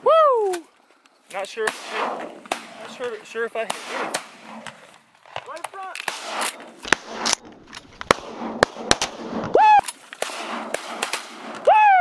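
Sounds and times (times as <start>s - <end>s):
shotgun shots: 1.6s - 9.6s, 10.2s - 11.7s.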